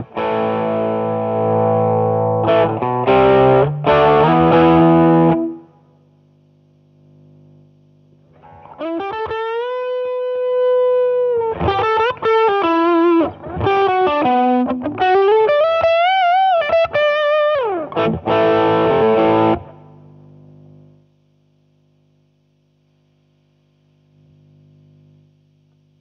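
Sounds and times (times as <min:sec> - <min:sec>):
overdriven electric guitar: 0:00.0 - 0:05.8, 0:08.3 - 0:20.0
amplifier hum: 0:00.0 - 0:26.0.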